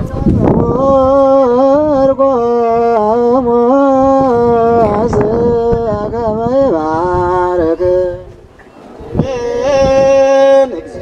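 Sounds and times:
person chanting: 9.0 - 11.0.

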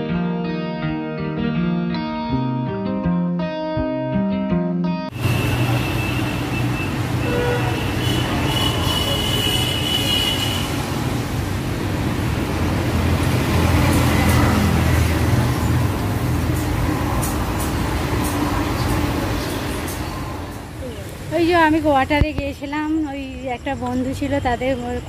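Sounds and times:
traffic noise: 5.1 - 25.0
motor vehicle passing: 10.7 - 21.9.

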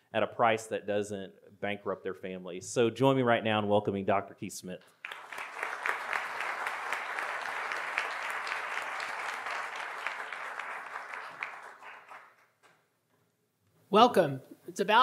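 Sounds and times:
audience applauding: 5.0 - 12.8.

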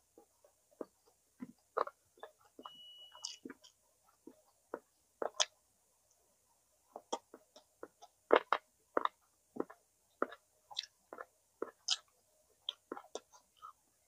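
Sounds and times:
chewing with wet mouth clicks: 3.2 - 5.6, 7.0 - 13.8.

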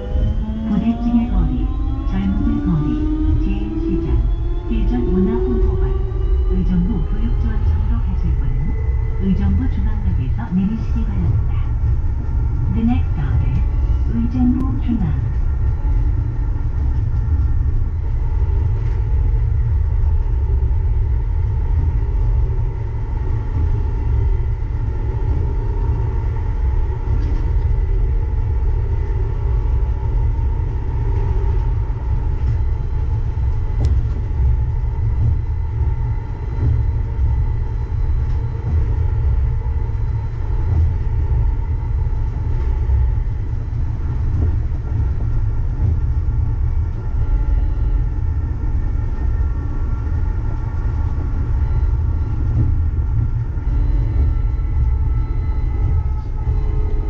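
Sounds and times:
faint drive whine: 0.0 - 57.0
train low rumble: 0.0 - 57.0.

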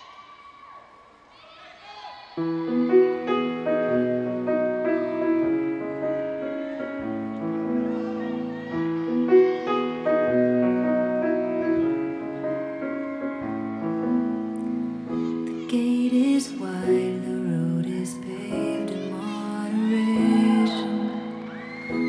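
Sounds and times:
slow piano chords: 2.3 - 22.0.

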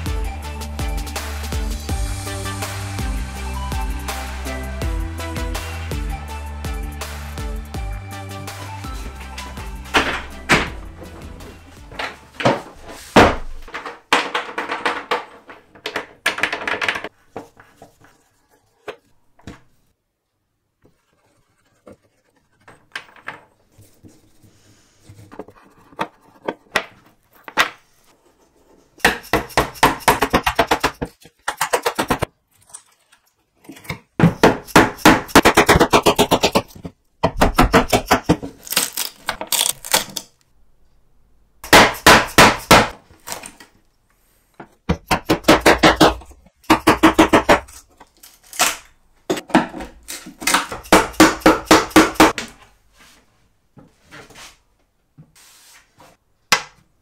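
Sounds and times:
wooden cabinet thunking: 9.8 - 15.6.

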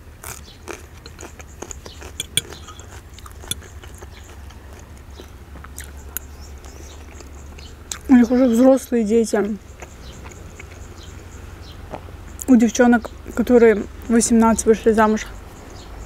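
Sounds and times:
person chewing food: 0.2 - 8.1, 9.6 - 12.5.

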